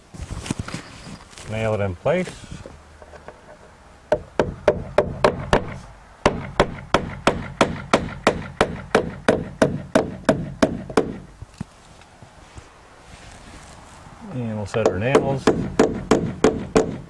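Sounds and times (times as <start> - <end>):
hammer driving nails into wood: 4.1 - 11.2, 14.8 - 17.0.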